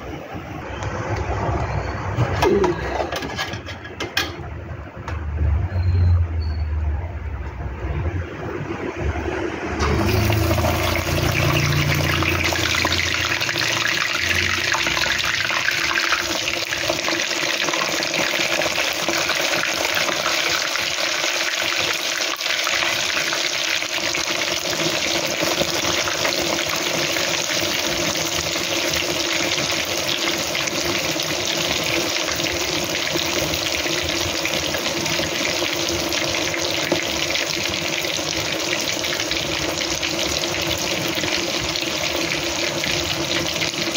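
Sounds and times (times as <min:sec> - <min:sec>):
food sizzling in hot oil: 0:09.8 - 0:43.9.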